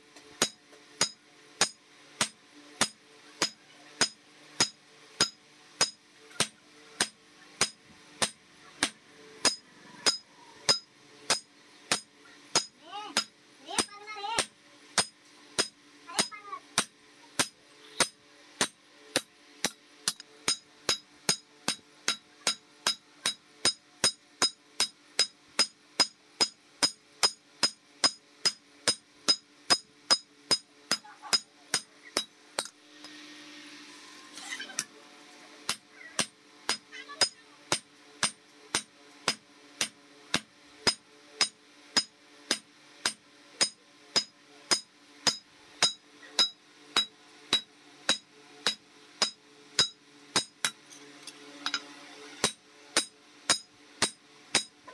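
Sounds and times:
hammer ringing on anvil: 0:43.0 - 0:50.5.

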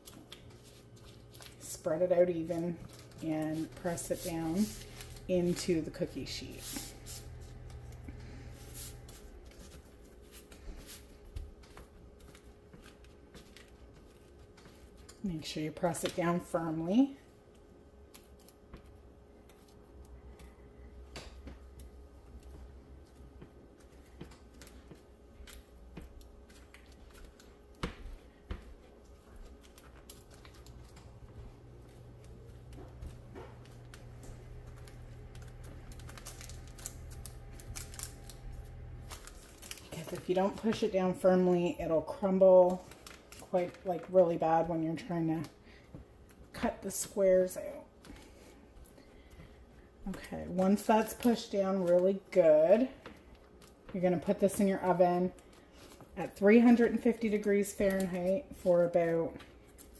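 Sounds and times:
low steady hum: 0:00.0 - 0:59.9
oats rustling on paper: 0:00.0 - 0:59.9
hands patting crumb base: 0:21.1 - 0:36.9.

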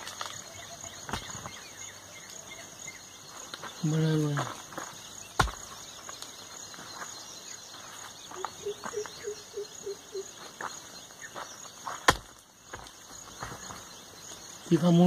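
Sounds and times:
insects chirring: 0:00.0 - 0:15.0
stone block thudding on dirt: 0:01.0 - 0:01.5, 0:04.8 - 0:05.8, 0:11.9 - 0:13.6.

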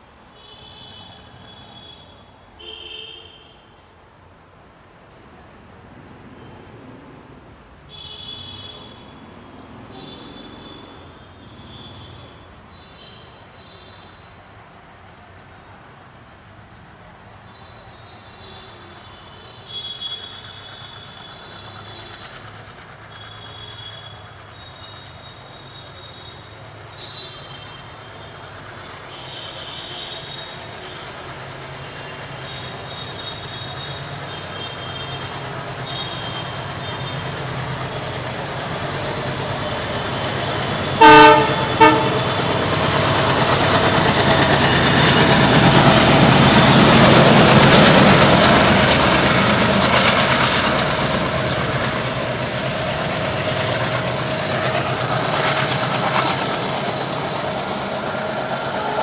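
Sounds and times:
diesel locomotives chugging: 0:08.0 - 0:59.0
locomotive horn blasts: 0:40.8 - 0:42.8
faint high squeals: 0:41.8 - 0:59.0.

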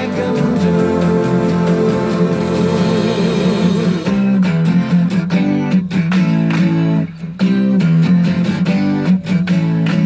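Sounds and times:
song on clock radio: 0:00.0 - 0:04.4.

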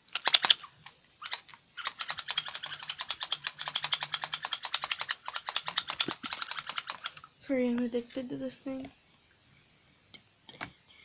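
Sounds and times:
spinning toy clicking: 0:00.1 - 0:07.3.

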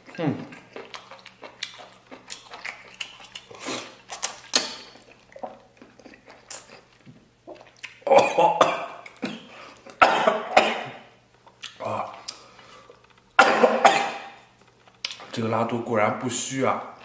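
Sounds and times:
slurping and chewing: 0:00.0 - 0:08.1
person coughing: 0:08.1 - 0:11.0, 0:13.4 - 0:14.4.

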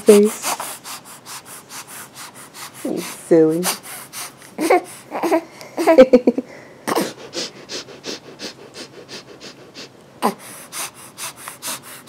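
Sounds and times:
baby sniffing: 0:00.0 - 0:05.4, 0:06.9 - 0:12.0
baby laughing: 0:04.6 - 0:06.4.

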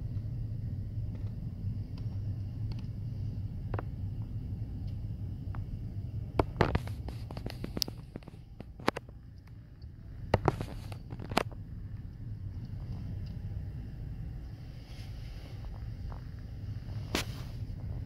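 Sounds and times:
car cabin rumble: 0:00.0 - 0:18.0
sharp clicks and knocks: 0:06.3 - 0:09.6.

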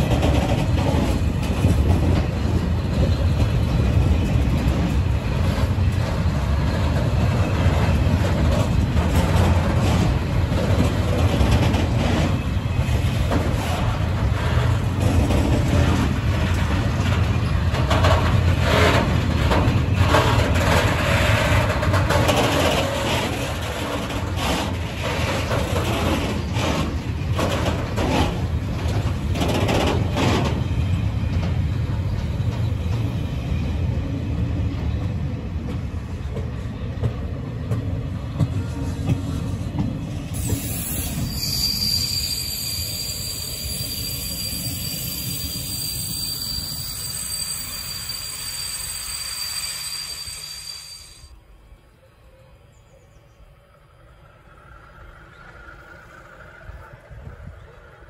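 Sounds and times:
wagons clanking and rattling: 0:00.0 - 0:32.7
freight train rumbling: 0:00.0 - 0:58.0.

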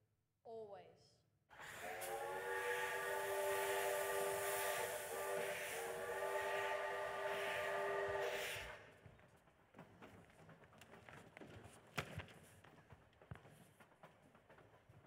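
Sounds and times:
hissing steam: 0:01.6 - 0:08.9
steam train whistle: 0:01.6 - 0:08.9.

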